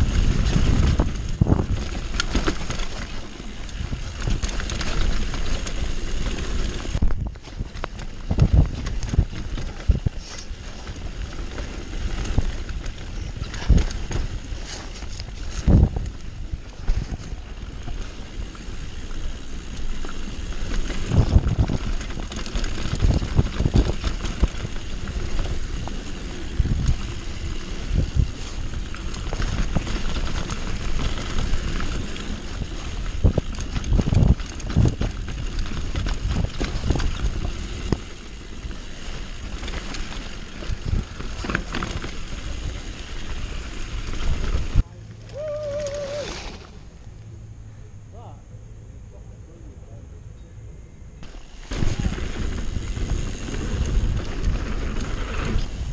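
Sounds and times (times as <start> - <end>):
wind buffeting microphone: 0.0 - 19.4, 20.4 - 41.6
bike rattling on dirt: 0.0 - 47.1, 51.2 - 55.9.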